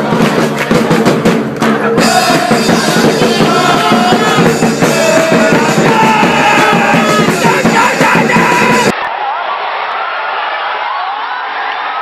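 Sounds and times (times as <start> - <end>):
drums beating: 0.0 - 9.0
crowd singing a chant: 1.7 - 8.9.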